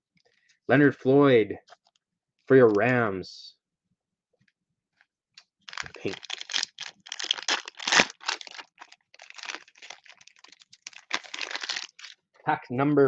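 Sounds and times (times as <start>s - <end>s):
cellophane wrapper crinkling and tearing: 5.7s - 12.2s.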